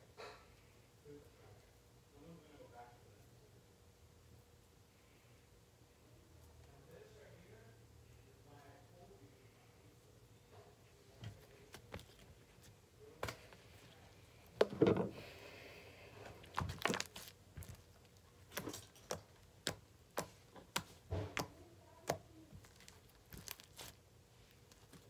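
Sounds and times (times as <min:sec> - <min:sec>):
slime crackling squelch: 0:16.2 - 0:25.0.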